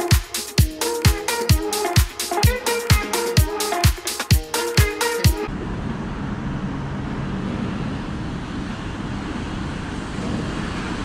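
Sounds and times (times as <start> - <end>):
dance music beat: 0.0 - 5.5
city traffic rumble: 5.4 - 11.0.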